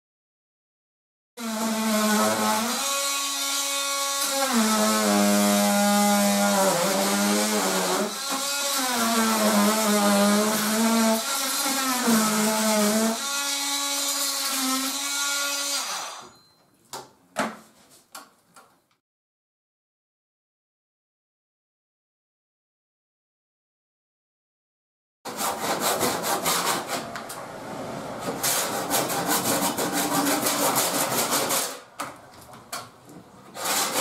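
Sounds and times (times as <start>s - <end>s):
oscillating multi-tool cutting wood: 6.7s - 16.3s.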